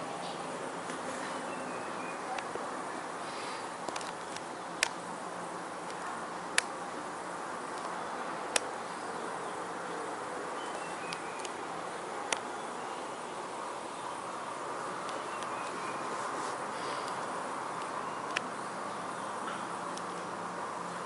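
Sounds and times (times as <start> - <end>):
background hiss: 0.0 - 21.0
sharp clicks: 3.8 - 5.0, 5.9 - 6.8, 17.0 - 18.5.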